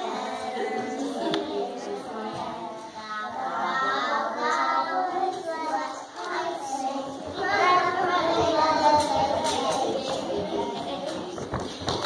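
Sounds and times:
children singing: 0:00.0 - 0:12.0.

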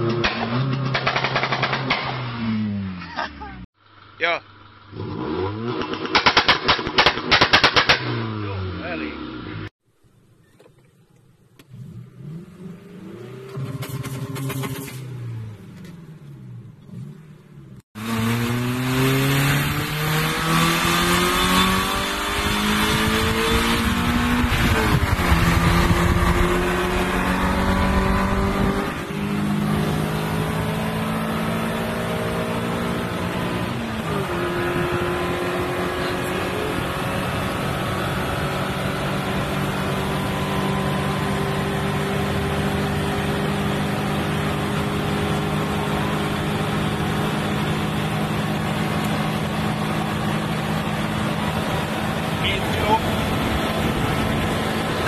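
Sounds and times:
car engine accelerating: 0:11.6 - 0:55.0.

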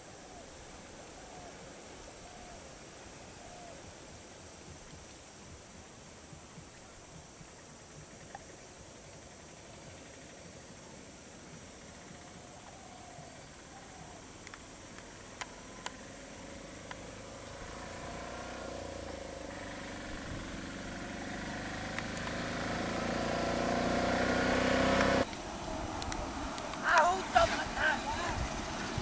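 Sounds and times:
auto-rickshaw engine droning: 0:13.8 - 0:29.0.

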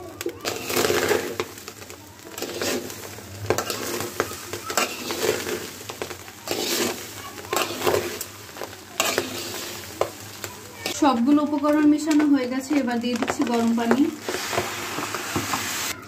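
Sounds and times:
frying sizzle: 0:00.0 - 0:16.0
metal spoon scraping pot: 0:00.4 - 0:01.7, 0:02.3 - 0:10.2.

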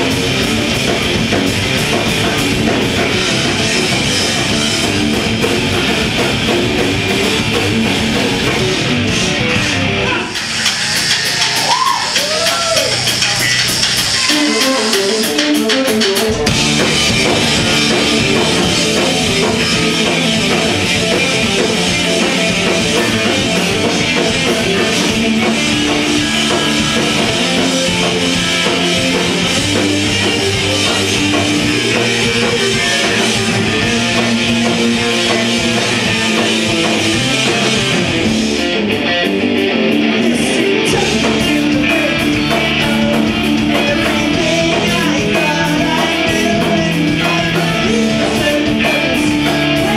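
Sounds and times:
distorted electric guitars: 0:00.0 - 0:49.9
rock band playing live: 0:00.0 - 0:49.9.

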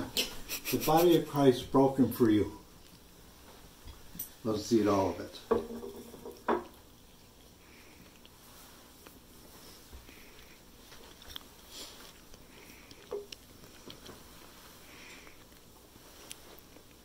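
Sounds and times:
man chewing bread: 0:02.6 - 0:04.2, 0:06.6 - 0:17.0
breathing through the nose: 0:14.7 - 0:15.6.

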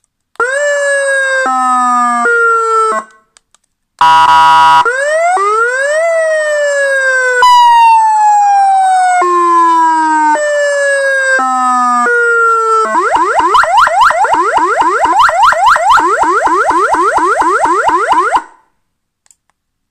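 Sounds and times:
siren wail: 0:00.4 - 0:03.2, 0:04.0 - 0:18.6
loud horn tone: 0:04.0 - 0:04.9
electronic siren tones: 0:04.0 - 0:18.6.

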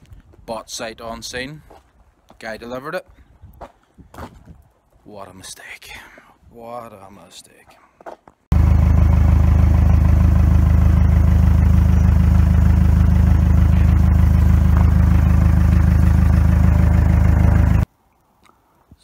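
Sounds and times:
small engine running: 0:08.5 - 0:17.8.

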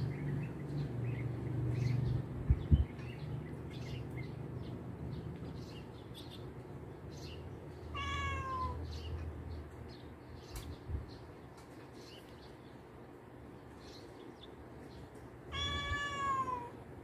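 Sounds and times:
cat meowing: 0:07.9 - 0:08.9, 0:15.5 - 0:16.8.

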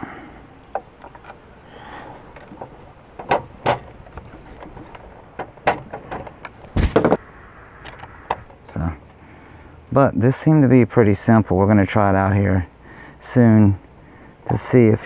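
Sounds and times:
heavy double thump: 0:06.7 - 0:07.2.

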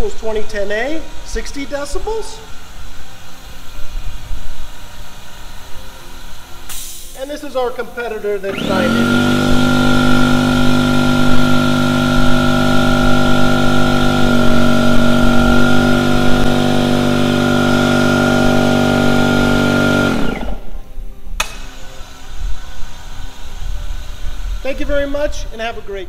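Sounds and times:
air compressor running: 0:00.0 - 0:25.3
sharp click: 0:21.4 - 0:21.8.

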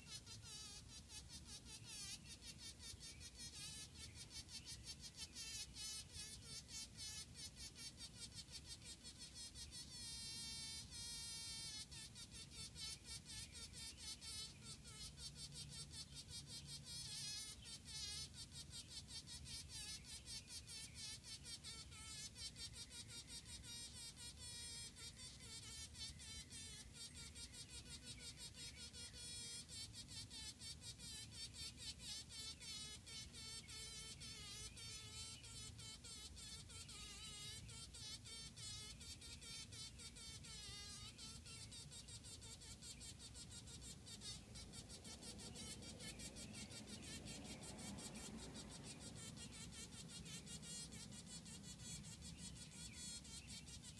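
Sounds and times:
bee buzzing in uneven bursts: 0:00.0 - 0:53.9.

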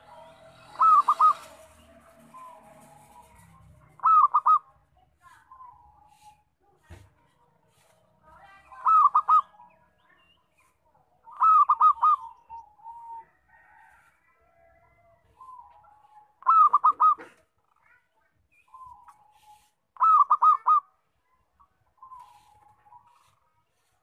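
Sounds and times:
dove cooing: 0:00.0 - 0:04.8, 0:08.8 - 0:09.7, 0:11.3 - 0:13.3, 0:15.4 - 0:17.5, 0:18.7 - 0:20.9.

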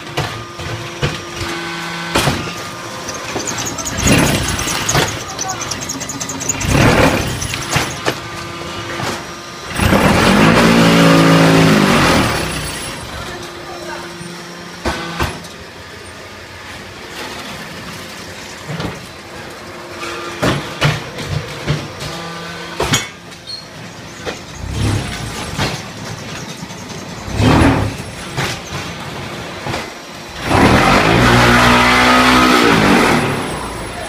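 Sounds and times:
loud vibrating buzz: 0:00.1 - 0:15.5, 0:19.9 - 0:26.1, 0:30.2 - 0:34.0
metal clanks and knocks: 0:20.4 - 0:29.9.

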